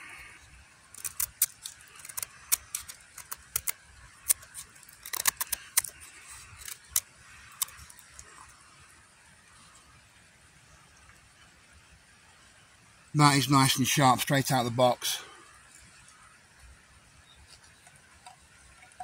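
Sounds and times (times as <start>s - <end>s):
knife carving wood cracks: 0.9s - 8.2s.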